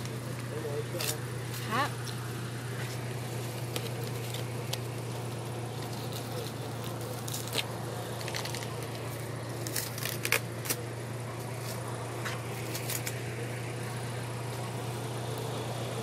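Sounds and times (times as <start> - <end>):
vehicle engine idling: 0.0 - 16.0.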